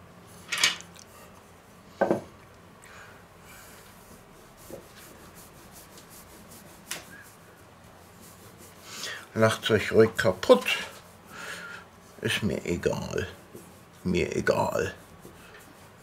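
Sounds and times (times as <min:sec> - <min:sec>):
rolling pin rubbing over dough: 0:03.5 - 0:16.0.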